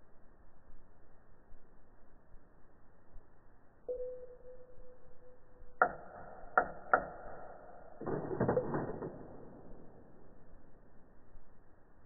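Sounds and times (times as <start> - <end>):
faint steady tone: 0.0 - 8.0.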